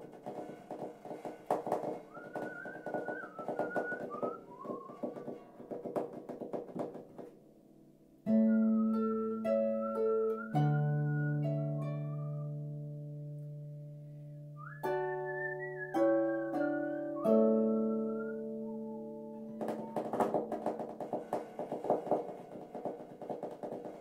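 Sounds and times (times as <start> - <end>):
high wavering melody: 14.8 - 20.6.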